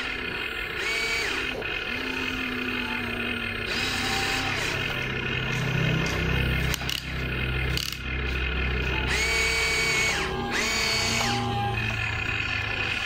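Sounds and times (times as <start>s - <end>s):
electric motors whining: 0.0s - 13.0s
steady low hum: 0.0s - 13.0s.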